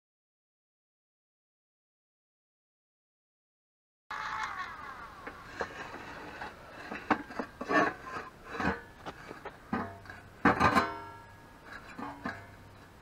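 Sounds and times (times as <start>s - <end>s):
metal plate clanking and scraping: 5.3s - 13.0s.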